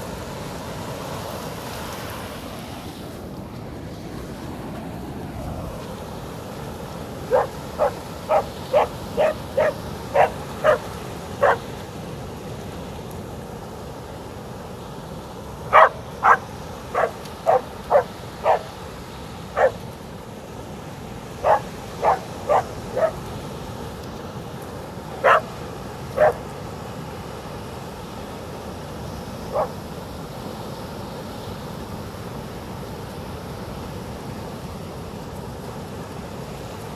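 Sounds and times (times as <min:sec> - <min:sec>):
surf rushing: 0:00.0 - 0:36.9
dog barking: 0:07.3 - 0:11.7, 0:15.7 - 0:18.7, 0:19.6 - 0:19.8, 0:21.4 - 0:23.2, 0:25.2 - 0:25.5, 0:26.1 - 0:26.4, 0:29.5 - 0:29.8.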